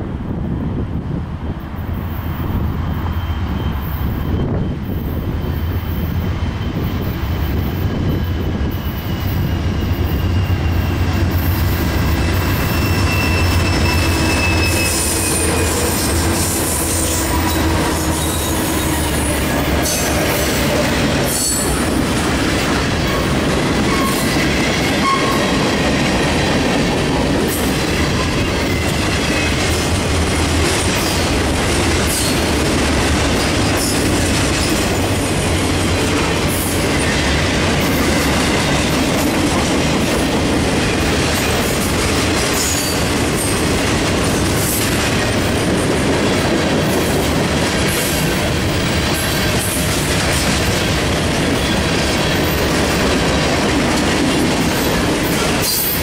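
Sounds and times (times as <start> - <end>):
diesel locomotive rumble: 0.0 - 56.0
thin wheel squeal: 12.5 - 15.8.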